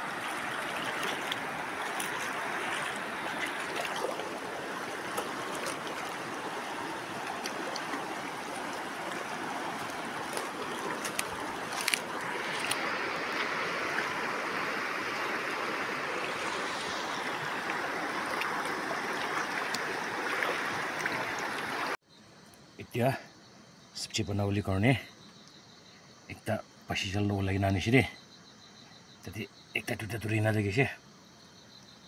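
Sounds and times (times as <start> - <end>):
river running over stones: 0.0 - 22.0.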